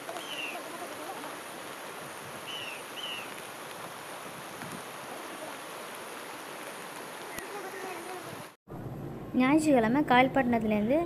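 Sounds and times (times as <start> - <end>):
rushing floodwater: 0.0 - 8.6.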